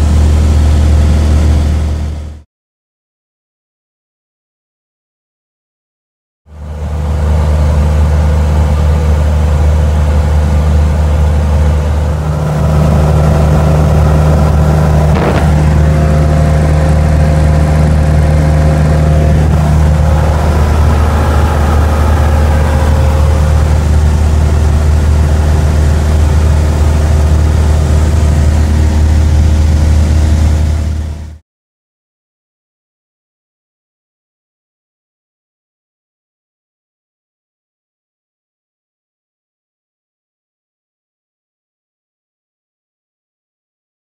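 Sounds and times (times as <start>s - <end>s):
propeller plane engine droning: 0.0s - 2.4s, 6.5s - 31.4s.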